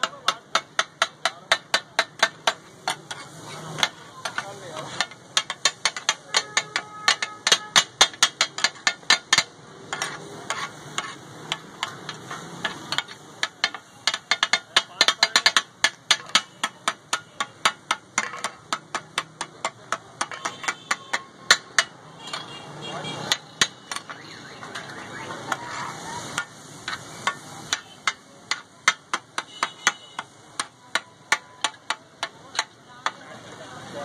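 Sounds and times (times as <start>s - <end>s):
metal spatulas clattering on griddle: 0.0s - 33.6s.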